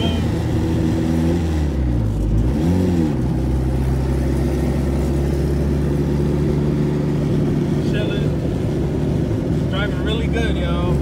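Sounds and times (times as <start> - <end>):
car engine from inside cabin: 0.0 - 11.0.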